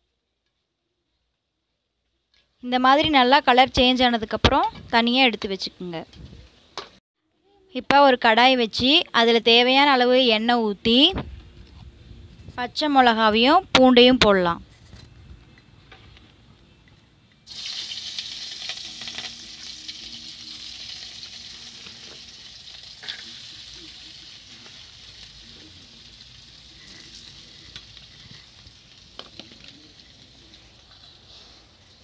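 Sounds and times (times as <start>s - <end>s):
food sizzling in hot oil: 17.5s - 32.0s.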